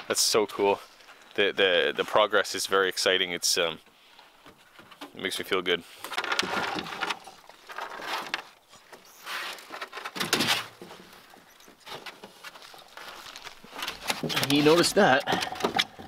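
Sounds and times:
canoe scraping and knocking: 5.9s - 16.0s.

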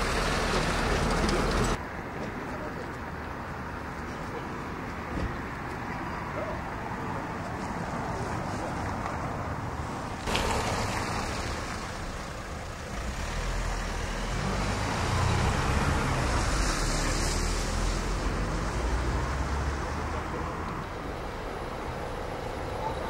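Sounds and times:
street noise hiss: 0.0s - 23.0s
passing vehicle rumble: 7.1s - 23.0s.

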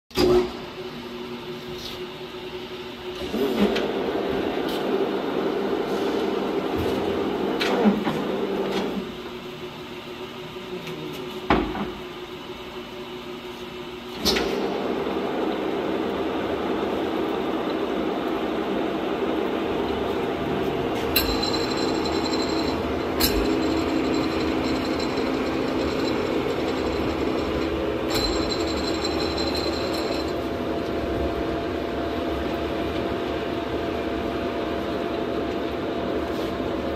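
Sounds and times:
lathe gear whine: 14.7s - 36.8s.

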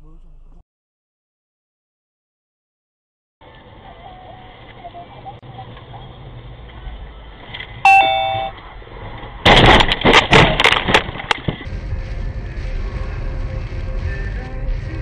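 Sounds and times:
road noise: 3.4s - 15.0s
two-note tone: 7.9s - 8.5s
car crash impacts: 9.0s - 11.7s.

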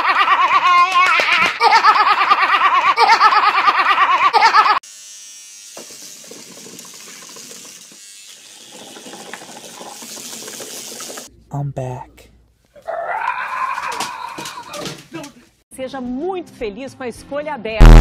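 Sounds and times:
girl laughing hysterically: 0.0s - 4.8s.

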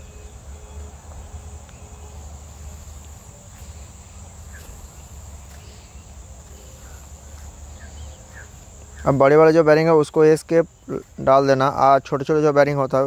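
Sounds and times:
steady low hum: 0.0s - 12.1s
continuous high-pitched whine: 0.0s - 13.0s.

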